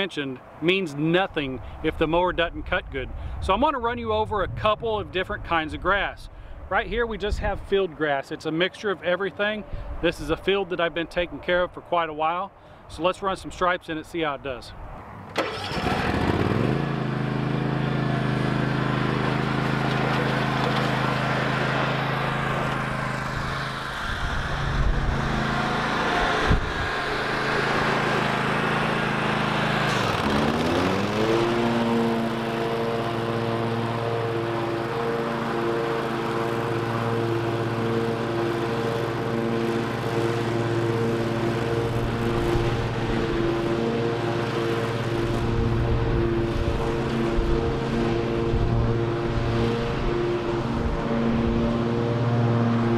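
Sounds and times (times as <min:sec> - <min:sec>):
ride-on mower cutting grass: 0:14.8 - 0:52.9.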